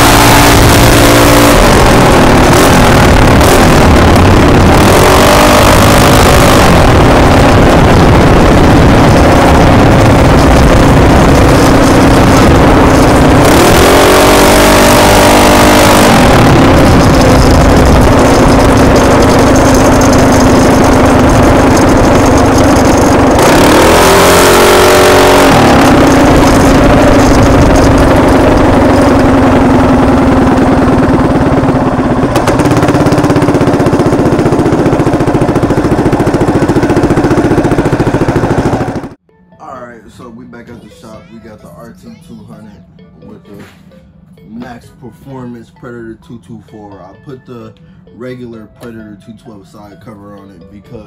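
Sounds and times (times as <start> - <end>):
minibike engine running: 0.0 - 39.2
wind rush on microphone: 0.4 - 15.0.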